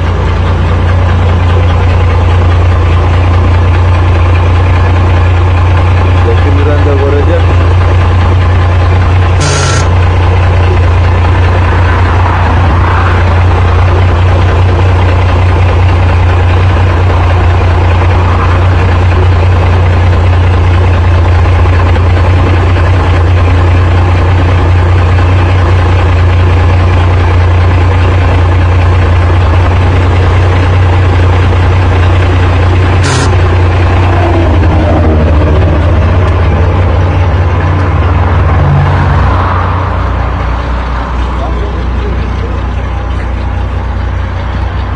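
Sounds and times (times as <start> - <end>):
diesel engine idling: 0.0 - 44.9.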